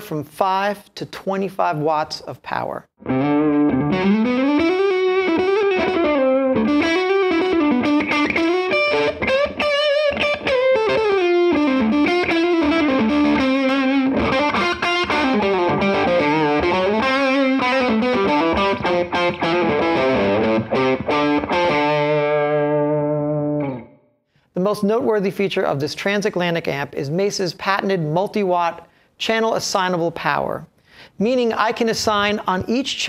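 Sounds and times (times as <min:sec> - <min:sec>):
overdriven electric guitar lead: 0:03.0 - 0:24.0.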